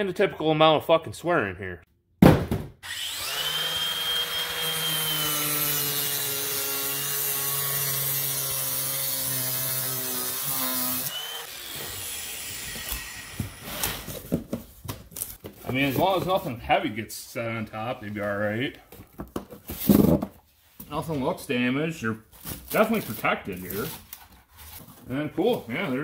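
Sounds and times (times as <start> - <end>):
cardboard box thud on floor: 2.2 - 2.7
angle grinder whining: 2.8 - 14.1.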